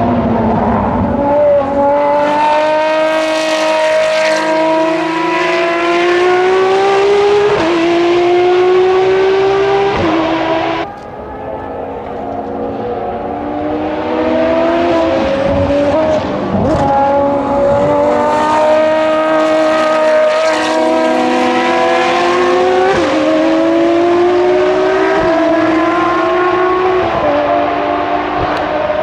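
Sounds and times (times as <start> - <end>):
race car engines accelerating: 0.0 - 29.0.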